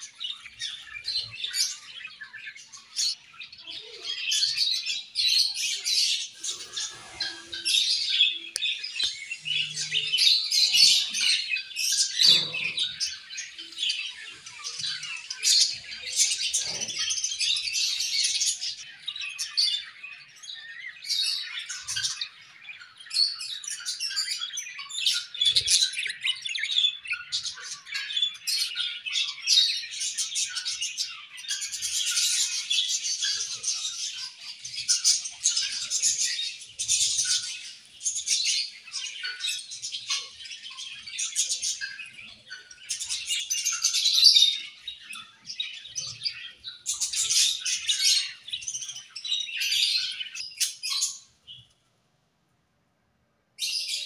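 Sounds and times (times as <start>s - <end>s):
budgerigars chirping and warbling: 0.0s - 51.8s.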